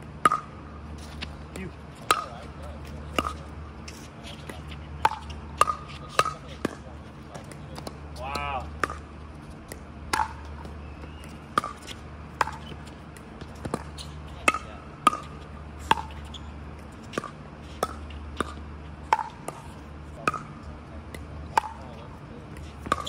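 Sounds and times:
ball bouncing on hard court: 0.2 - 6.8, 9.7 - 16.5, 17.1 - 23.0
paddles hitting plastic ball: 20.3 - 23.0.

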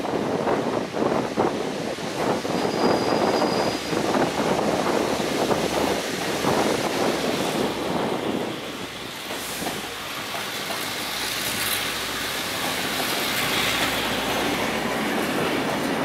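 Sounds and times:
train rushing past on rails: 0.0 - 16.0
wind buffeting microphone: 0.0 - 16.0.

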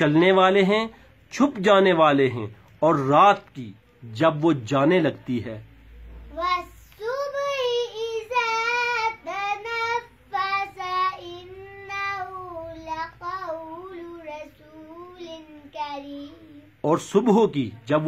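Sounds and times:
girl chanting melodically: 6.3 - 16.8.

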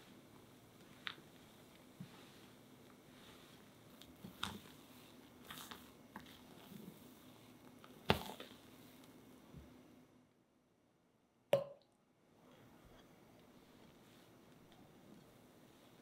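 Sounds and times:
spatula squishing batter: 0.8 - 9.2.

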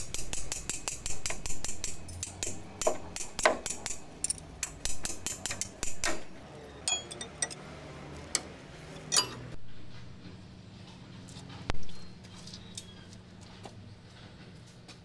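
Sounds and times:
metal tools clinking and knocking: 4.2 - 4.7, 6.8 - 7.6, 8.4 - 9.6.

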